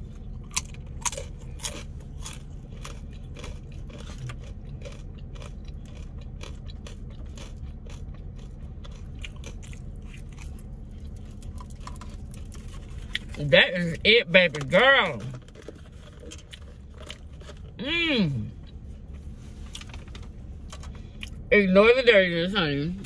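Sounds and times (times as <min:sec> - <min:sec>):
chewing crunchy food: 0:00.0 - 0:21.5
steady low hum: 0:00.0 - 0:23.0.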